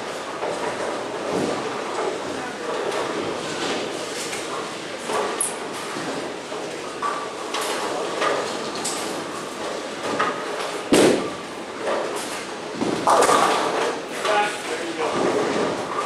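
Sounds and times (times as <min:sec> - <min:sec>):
bowling pins clattering: 0:00.3 - 0:16.0
bowling alley knocking and rumble: 0:08.4 - 0:14.1, 0:15.0 - 0:16.0
bowling ball thud on lane: 0:10.9 - 0:11.4.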